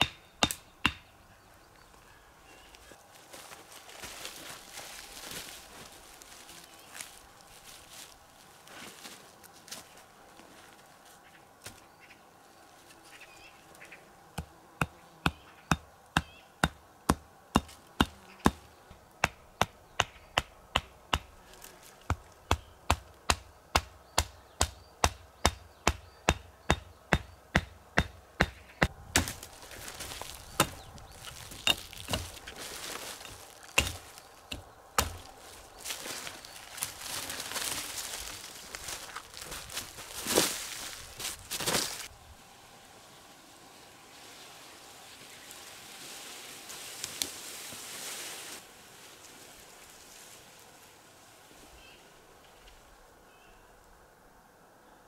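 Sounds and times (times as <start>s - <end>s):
wood being chopped: 0.0s - 1.1s, 22.1s - 36.2s
rustling: 2.7s - 11.8s, 29.2s - 42.1s.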